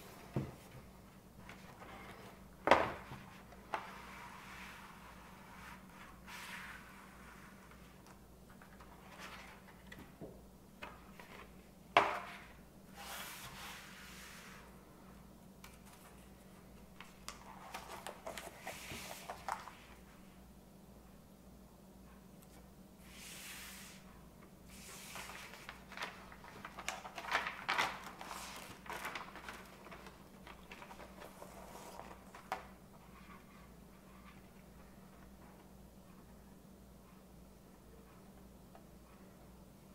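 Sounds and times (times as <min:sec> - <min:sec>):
faint steady hum: 0:00.0 - 0:39.9
cardboard sleeve rustling: 0:24.8 - 0:33.4.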